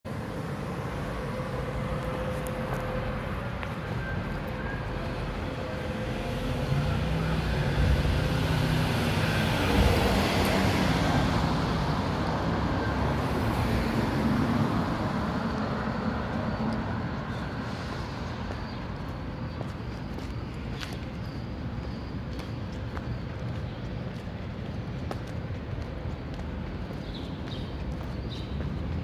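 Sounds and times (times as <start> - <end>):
road hum: 0.0 - 29.0.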